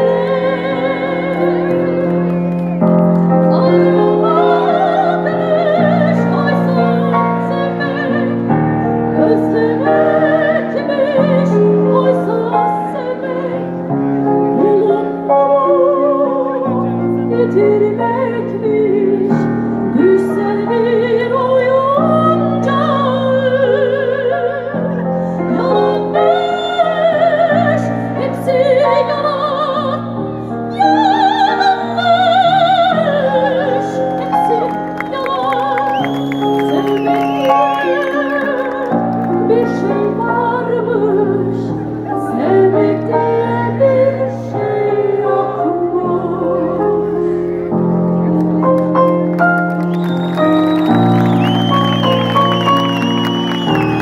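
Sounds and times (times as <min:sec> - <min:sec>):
soprano singing operatically: 0:00.0 - 0:02.0, 0:03.5 - 0:08.5, 0:09.2 - 0:13.7, 0:14.6 - 0:30.1, 0:30.7 - 0:47.2.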